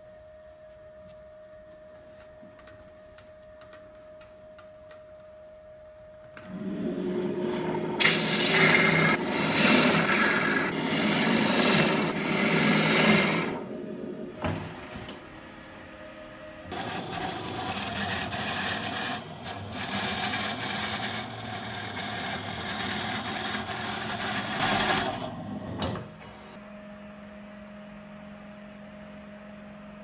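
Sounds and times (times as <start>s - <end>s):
lathe humming: 6.4s - 15.2s, 16.7s - 25.5s
lathe tool cutting wood: 6.5s - 13.7s, 16.7s - 25.3s.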